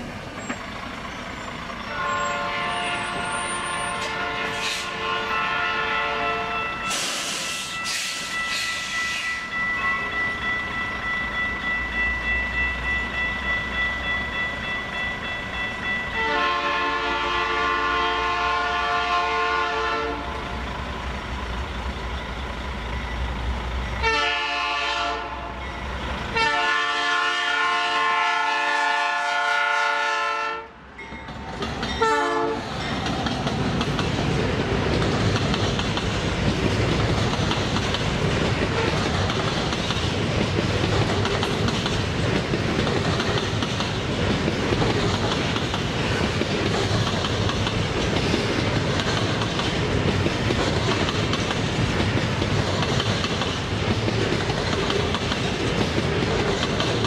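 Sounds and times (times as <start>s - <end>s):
locomotive horn blasts: 1.9s - 9.5s, 16.2s - 20.4s, 24.0s - 25.6s, 26.3s - 30.8s, 32.0s - 32.7s
train wheels clattering over rails: 31.1s - 57.0s.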